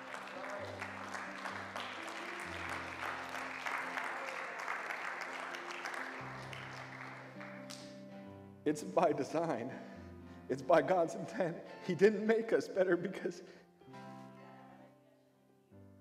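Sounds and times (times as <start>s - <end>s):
congregation applauding: 0.0s - 8.0s.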